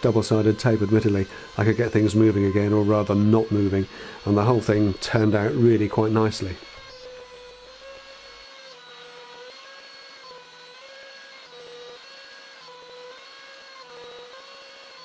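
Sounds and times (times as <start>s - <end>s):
dust extraction drawing air: 0.0s - 7.0s
router milling wood whine: 0.0s - 15.0s.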